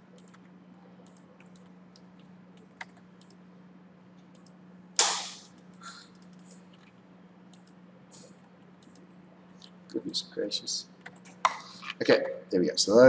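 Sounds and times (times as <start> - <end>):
faint steady hum: 0.0 - 13.0
keyboard and mouse clicks: 0.2 - 3.4, 5.5 - 6.9, 8.8 - 9.1
loud sharp noise: 5.0 - 5.5.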